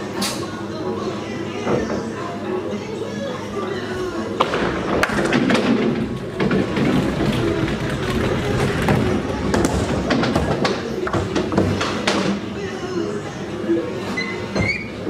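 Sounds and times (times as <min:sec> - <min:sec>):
bowling balls rolling: 0:04.0 - 0:12.6
bowling pins clattering: 0:04.3 - 0:12.5.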